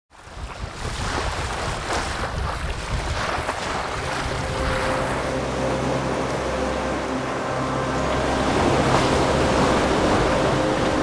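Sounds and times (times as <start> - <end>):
water rushing past boat bow: 0.1 - 11.0
wind: 0.1 - 11.0
higher held tone: 3.8 - 11.0
low steady tone: 3.8 - 11.0.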